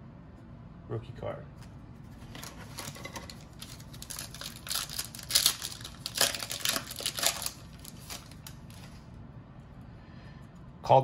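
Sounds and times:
foil wrapper crinkling and tearing: 2.3 - 9.1.

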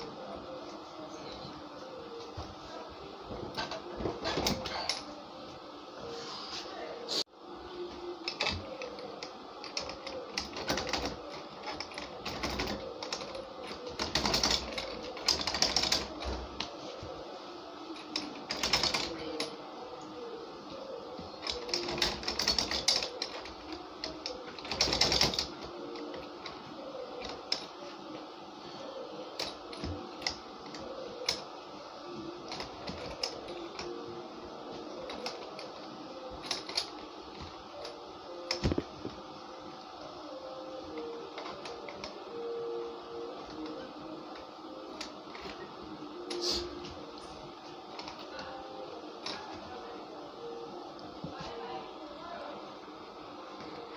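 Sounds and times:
metal latch clicking and rattling: 21.4 - 26.6.

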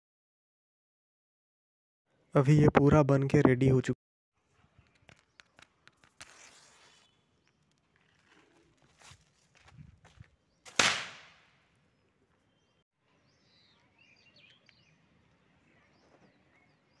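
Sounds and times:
soft crackles of burning: 4.4 - 11.0
firecracker bang: 10.7 - 11.5.

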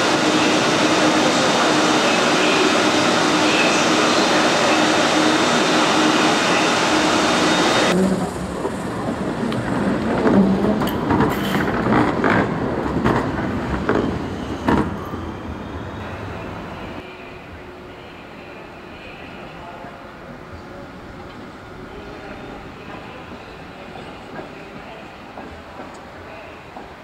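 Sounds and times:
tram wheels rattling over rails: 2.9 - 15.0.

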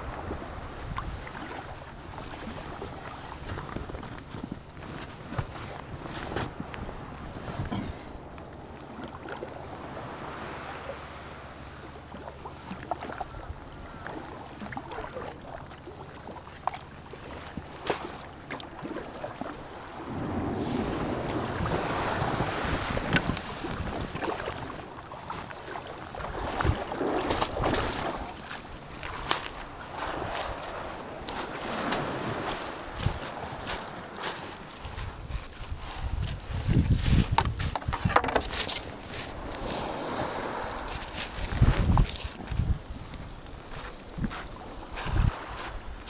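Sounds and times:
waves washing over pebbles: 0.0 - 12.8, 13.9 - 46.0
water lapping at hull: 0.0 - 46.0
paddle strokes: 0.9 - 46.0
kayak scraping onto stones: 35.0 - 42.8.

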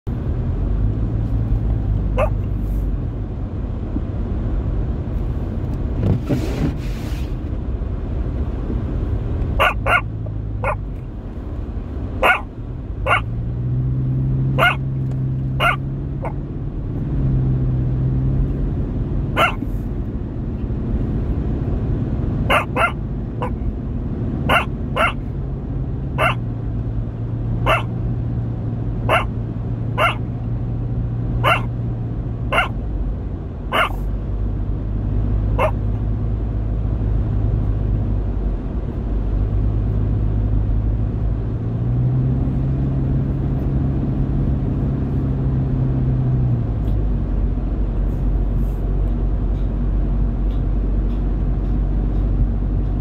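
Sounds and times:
engine and tyre hum: 0.0 - 53.0.

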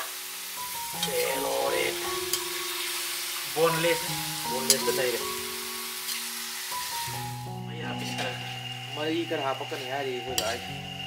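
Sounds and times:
meat sizzling in a wok: 0.0 - 11.0
background music with singing: 0.7 - 11.0
metal ladle scraping pan: 4.6 - 5.2, 5.9 - 7.3, 7.9 - 8.8.

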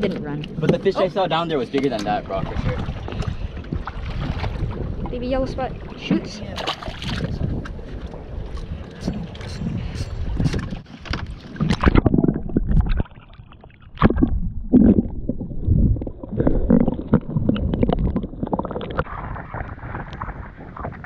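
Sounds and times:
underwater sloshing and gurgling: 0.0 - 21.0
low thumps: 14.0 - 21.0.

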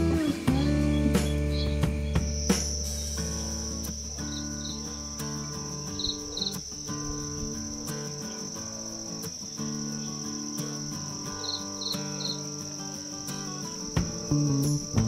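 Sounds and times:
soft background music: 0.0 - 4.9
insects trilling: 0.0 - 15.0.

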